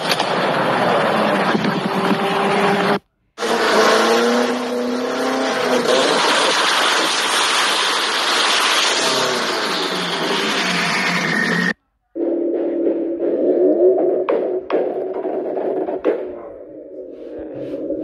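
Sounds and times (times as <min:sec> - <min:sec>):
car engine revving: 0:00.0 - 0:11.8
sports car accelerating in tunnel: 0:00.3 - 0:07.0.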